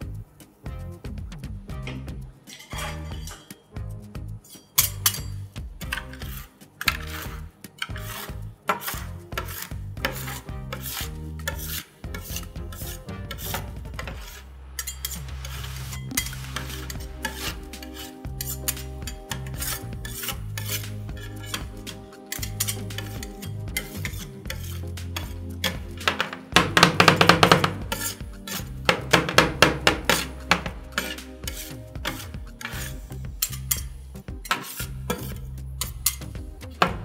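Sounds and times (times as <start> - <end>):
spatulas scraping frozen sheet: 6.0 - 33.8, 34.5 - 36.3.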